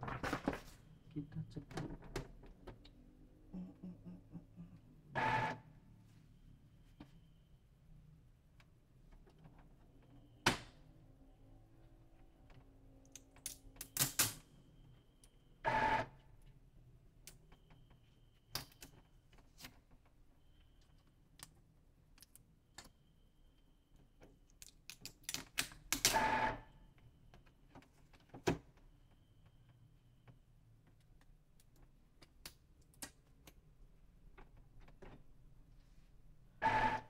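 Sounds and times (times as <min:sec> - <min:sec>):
printer whirring bursts: 0:26.1 - 0:26.6, 0:36.6 - 0:37.0.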